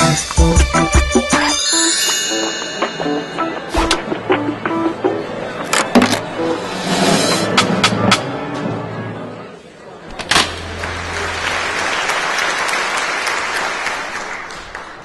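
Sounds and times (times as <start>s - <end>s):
music: 0.0s - 12.7s
audience applause: 10.5s - 15.0s.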